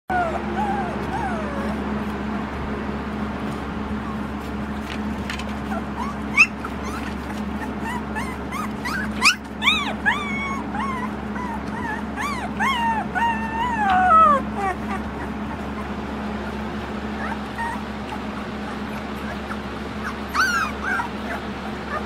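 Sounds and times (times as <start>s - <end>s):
puppies whining and yelping: 0.1s - 2.2s, 3.8s - 22.0s.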